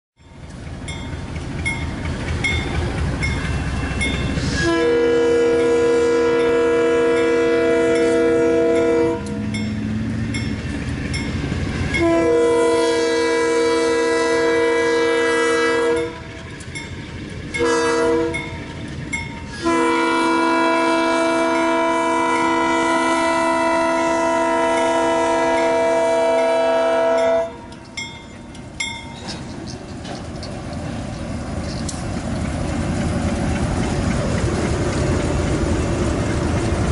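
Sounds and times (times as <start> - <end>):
locomotive rumble: 0.2 - 36.9
locomotive air horn: 4.3 - 9.5, 12.0 - 16.5, 17.6 - 18.5, 19.5 - 27.8.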